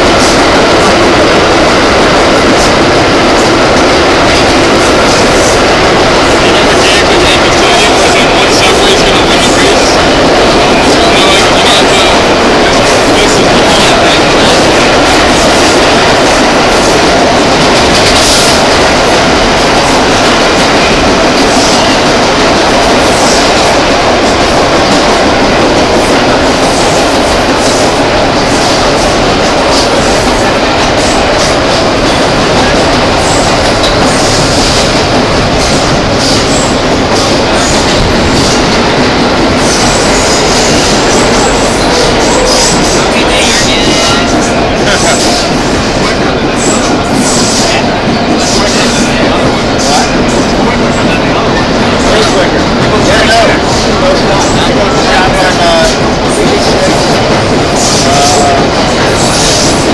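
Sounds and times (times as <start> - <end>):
subway car wheels rumbling on rail: 0.0 - 59.9.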